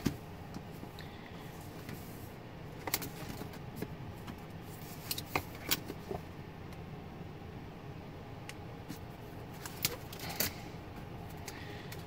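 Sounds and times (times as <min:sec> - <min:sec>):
paper pages rustling: 0:04.6 - 0:06.2.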